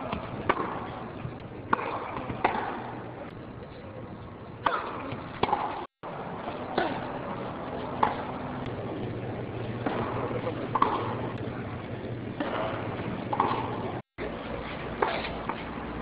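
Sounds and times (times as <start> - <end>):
racket striking tennis ball: 0.0 - 1.0, 1.7 - 3.0, 4.6 - 5.9, 7.8 - 8.5, 9.8 - 11.4, 12.4 - 14.0, 14.9 - 15.7
faint crowd murmur: 0.0 - 16.0.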